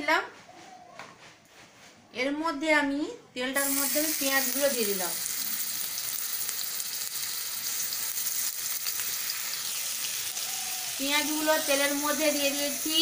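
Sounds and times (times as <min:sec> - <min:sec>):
onions sizzling in hot oil: 0:03.6 - 0:13.0.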